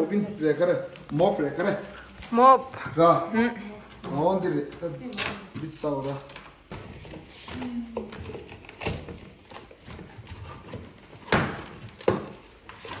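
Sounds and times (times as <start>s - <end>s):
cardboard flaps scraping and rustling: 5.7s - 13.0s.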